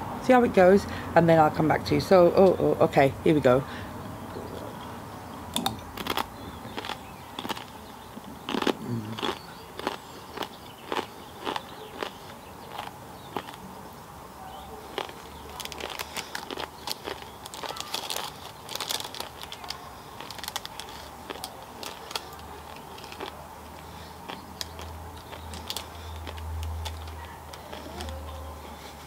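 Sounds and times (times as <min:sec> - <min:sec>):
chip crunching while chewed: 0:05.6 - 0:13.7, 0:14.8 - 0:29.0
foil wrapper crinkling: 0:15.0 - 0:28.3.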